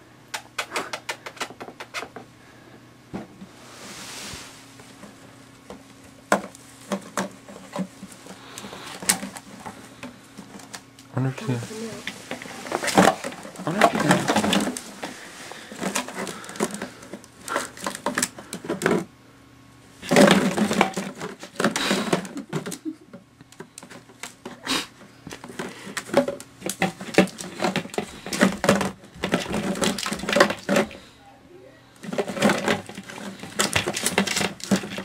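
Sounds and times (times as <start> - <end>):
plastic bottles crinkling and clattering: 4.9 - 19.1, 20.0 - 24.6, 25.2 - 31.1, 32.0 - 35.0.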